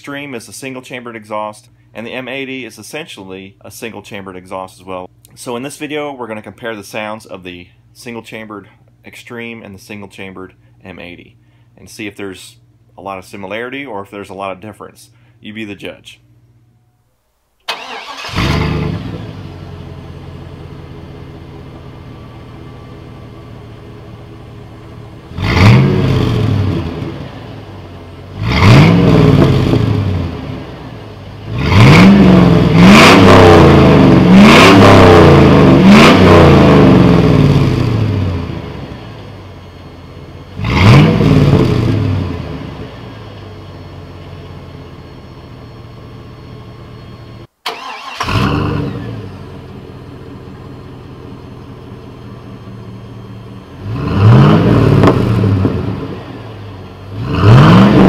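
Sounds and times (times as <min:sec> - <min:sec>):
car engine revving: 0:17.7 - 0:20.8, 0:24.1 - 0:39.3, 0:40.5 - 0:43.8, 0:47.7 - 0:50.8, 0:51.4 - 0:58.0
car engine idling: 0:17.7 - 0:58.0.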